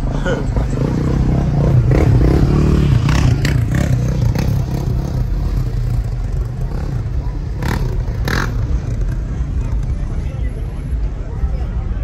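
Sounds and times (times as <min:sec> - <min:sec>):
vehicle engine revving: 0:00.5 - 0:09.7.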